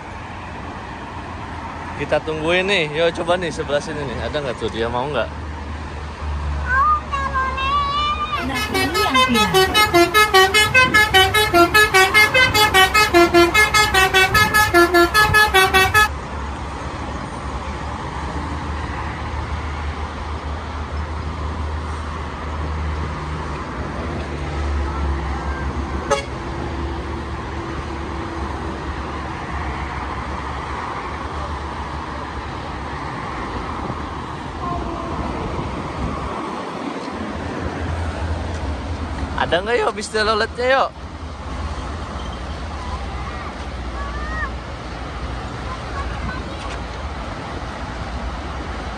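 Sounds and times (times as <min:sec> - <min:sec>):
highway traffic rumble: 0:00.0 - 0:48.9
multi-tone air horn melody: 0:08.4 - 0:16.1, 0:26.1 - 0:26.4.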